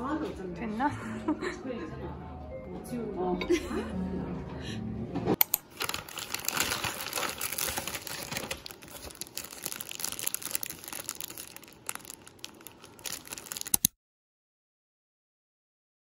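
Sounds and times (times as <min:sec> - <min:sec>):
plastic wrapper crinkling: 0:05.4 - 0:13.9
paper bag rustling: 0:05.6 - 0:13.9.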